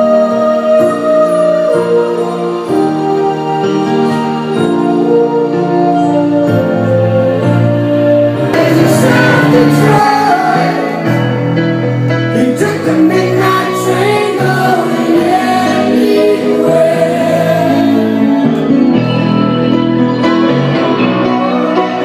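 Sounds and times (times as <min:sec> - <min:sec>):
sustained instrumental chords: 0:00.0 - 0:22.0
voices singing: 0:08.4 - 0:11.5, 0:12.4 - 0:18.8.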